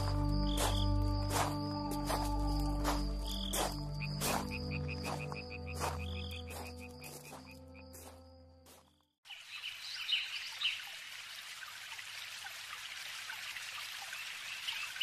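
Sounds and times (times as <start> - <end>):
music: 0.0 - 9.0
frogs croaking: 0.0 - 11.0
steady hiss of running water: 9.3 - 15.0.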